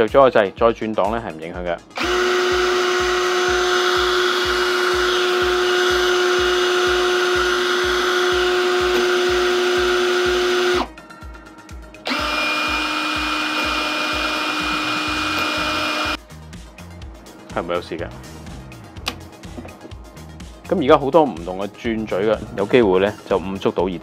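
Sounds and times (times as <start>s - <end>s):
background music with beat: 0.0s - 24.0s
cordless drill motor running: 2.0s - 10.9s, 12.0s - 16.2s.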